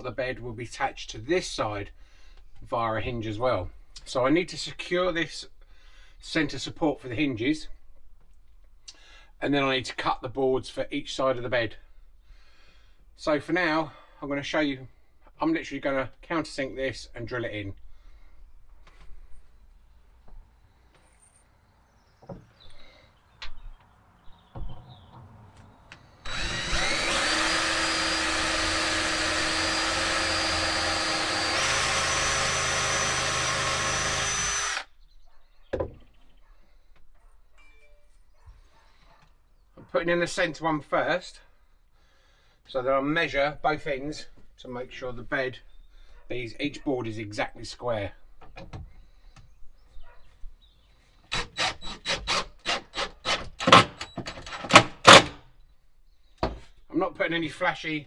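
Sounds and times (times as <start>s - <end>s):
cordless drill boring into wood: 26.2s - 34.9s, 51.3s - 55.4s.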